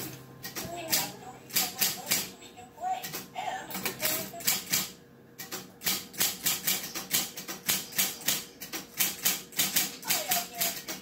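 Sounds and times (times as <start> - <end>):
typewriter keys clacking: 3.9 - 11.0.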